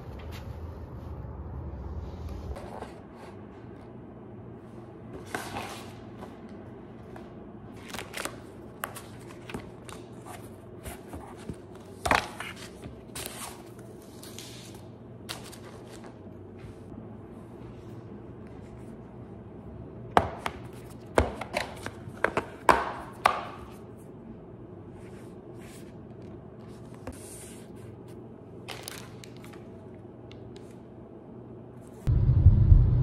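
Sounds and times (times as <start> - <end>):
rustling of packaging: 28.6 - 29.8.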